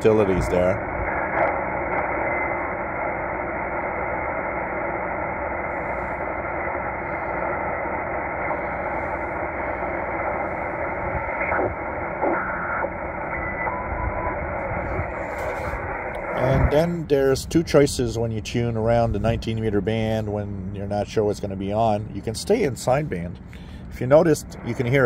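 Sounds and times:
radio whistle: 0.0 - 17.3
radio crackles: 0.0 - 25.0
shortwave radio static hissing: 0.0 - 25.0.

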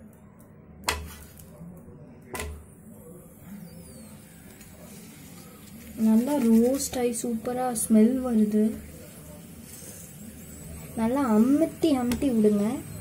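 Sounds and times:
metal spatula knocking on pan: 0.9 - 1.2, 2.4 - 2.6.

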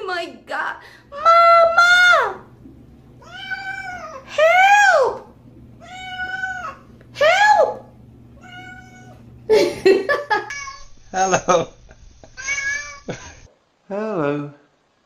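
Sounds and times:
cat meowing: 3.2 - 4.3, 5.8 - 6.9, 8.4 - 9.2, 10.4 - 10.9, 12.4 - 13.1.

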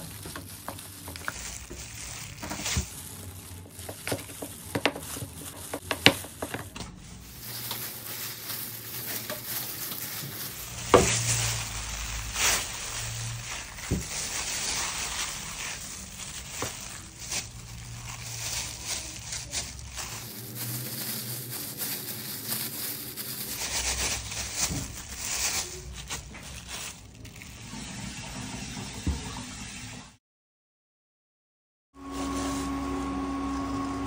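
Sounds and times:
plastic gloves crinkling: 0.0 - 28.2, 32.1 - 33.0.

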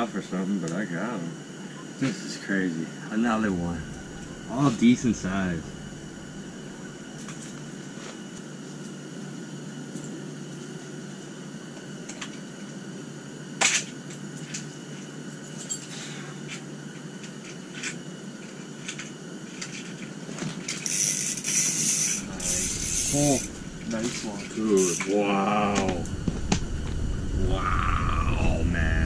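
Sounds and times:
steady low hum: 0.0 - 29.0
fishing reel clicks and rattles: 20.7 - 23.5, 24.8 - 25.1
reel rasping: 20.8 - 25.2.

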